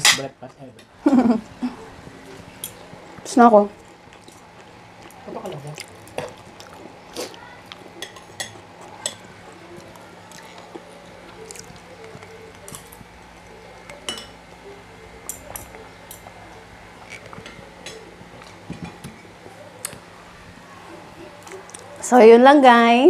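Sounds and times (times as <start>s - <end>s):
faint steady hum: 0.0s - 23.0s
spoon clinking on ceramic plates: 13.9s - 14.4s.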